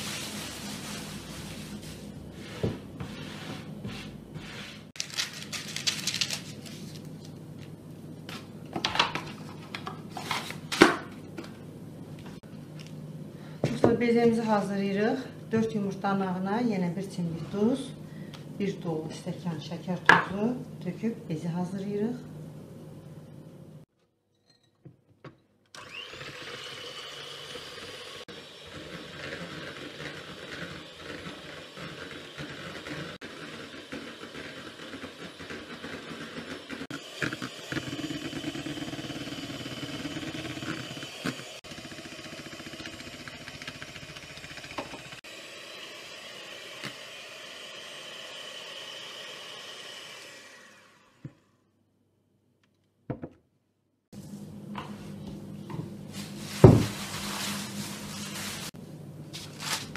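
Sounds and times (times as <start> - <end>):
electric hand mixer whipping: 25.8 - 51.5.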